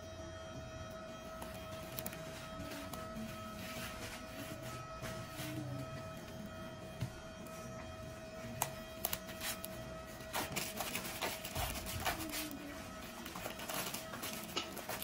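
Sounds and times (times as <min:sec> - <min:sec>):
plastic bag crinkling: 0:09.1 - 0:15.0.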